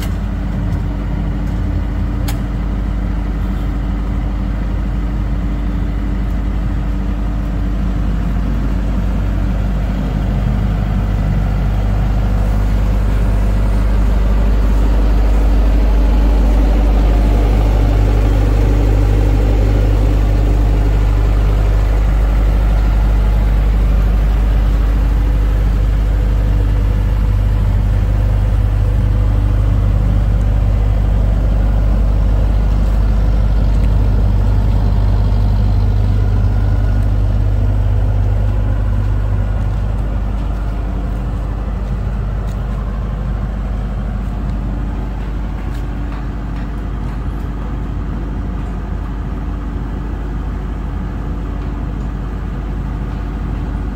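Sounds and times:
diesel generator droning: 0.0 - 53.9.

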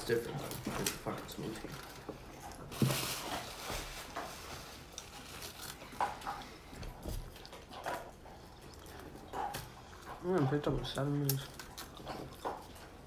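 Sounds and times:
paper and foil wrapping rustling: 0.0 - 7.2
person chewing: 0.0 - 13.0.

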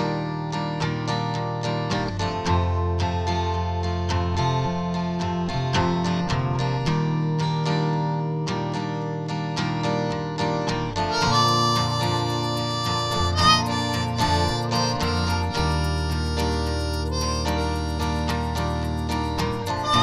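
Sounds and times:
plucked rhythm music: 0.0 - 20.0
held-note melody: 11.1 - 20.0.

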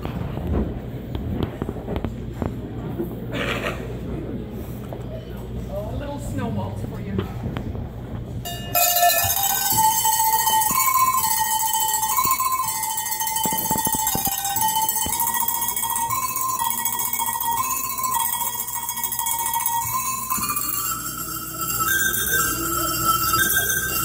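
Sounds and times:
cowbells playing a melody: 8.5 - 24.0.

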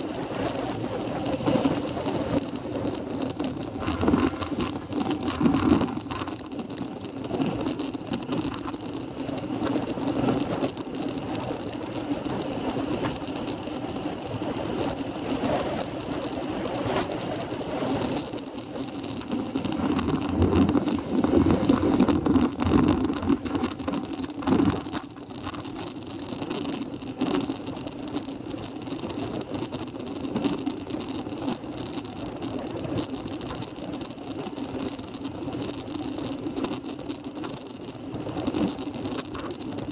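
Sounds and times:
bicycle knocks and rattles: 0.0 - 39.9
tyre and road noise: 0.0 - 39.9
wind buffeting microphone: 0.1 - 11.4.

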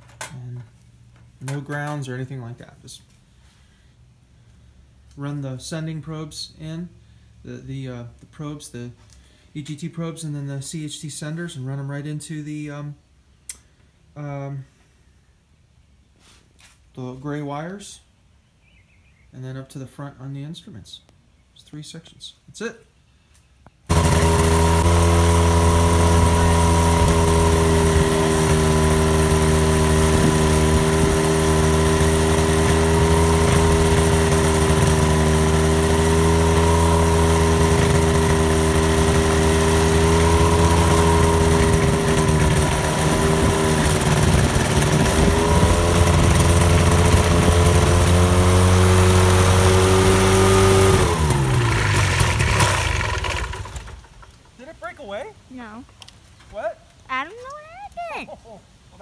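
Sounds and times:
ultralight aircraft engine running: 23.9 - 48.8
engine winding down: 23.9 - 54.5.

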